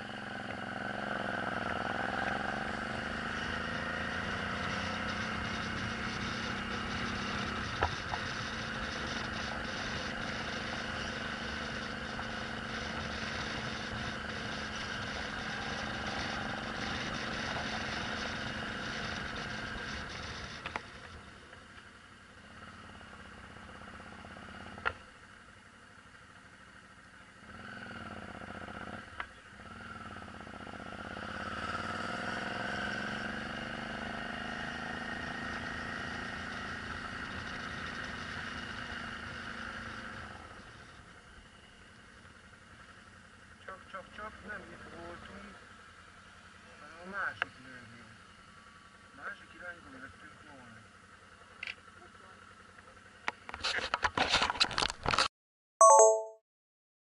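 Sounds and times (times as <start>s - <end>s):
motorcycle engine running: 0.0s - 54.2s.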